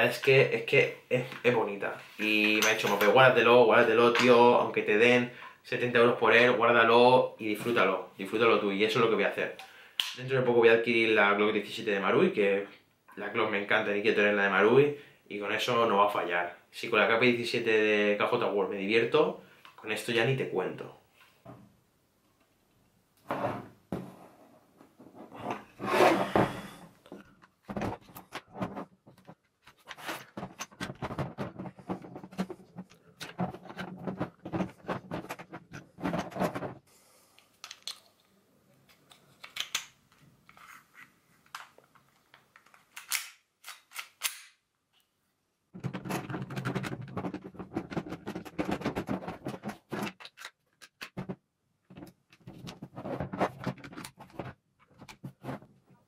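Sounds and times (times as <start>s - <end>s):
plastic and metal clicks and snaps: 37.6s - 38.3s, 38.9s - 40.6s, 41.4s - 44.6s, 50.1s - 51.2s.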